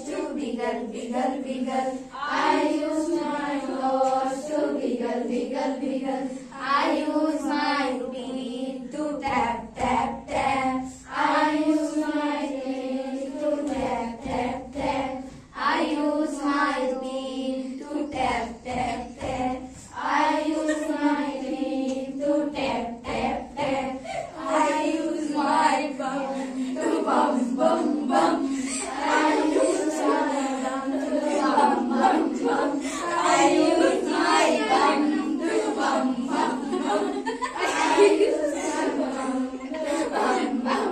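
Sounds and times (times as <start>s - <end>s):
girls singing together: 0.0s - 40.9s
hand claps: 9.2s - 10.7s.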